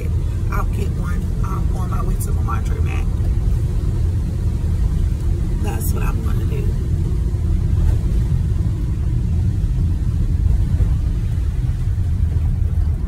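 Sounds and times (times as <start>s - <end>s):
van road and engine noise: 0.0s - 13.0s.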